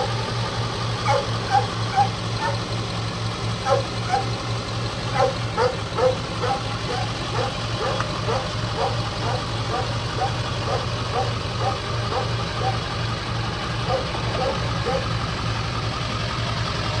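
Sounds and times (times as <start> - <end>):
truck engine humming: 0.0 - 17.0
dog yapping: 1.0 - 2.7, 3.6 - 4.4, 5.1 - 12.8, 13.8 - 15.1.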